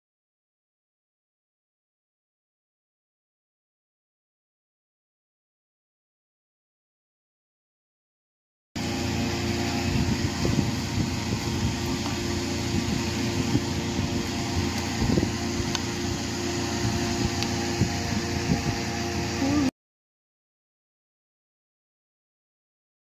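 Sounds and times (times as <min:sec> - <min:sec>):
mechanical whir and hum: 0:08.8 - 0:19.7.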